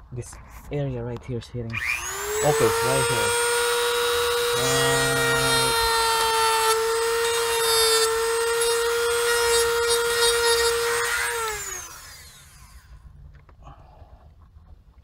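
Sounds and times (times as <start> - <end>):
rotary tool whining: 1.7 - 13.0.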